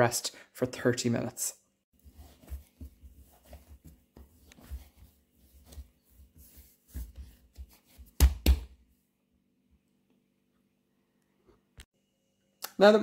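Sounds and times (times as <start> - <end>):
hands kneading dough: 1.9 - 9.0.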